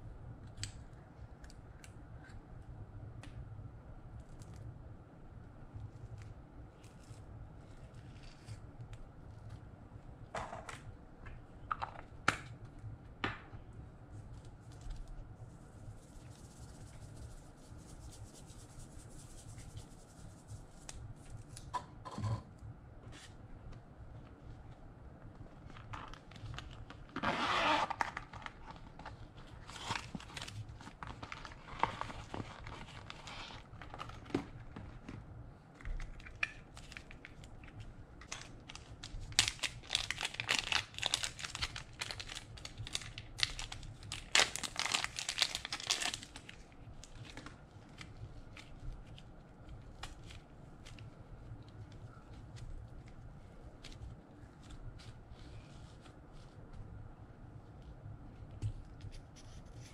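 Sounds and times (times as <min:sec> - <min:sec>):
plastic wrapper crinkling and tearing: 0:25.6 - 0:35.0, 0:35.8 - 0:53.2.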